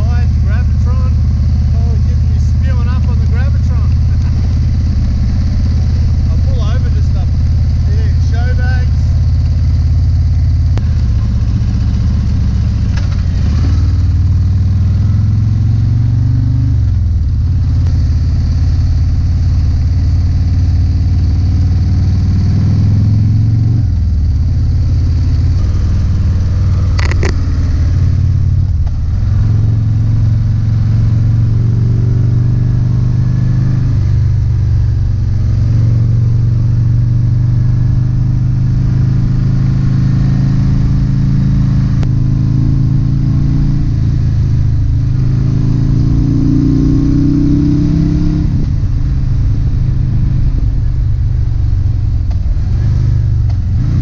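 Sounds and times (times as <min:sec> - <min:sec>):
motorcycle engine running: 0:00.0 - 0:54.0
sharp click: 0:26.9 - 0:27.5.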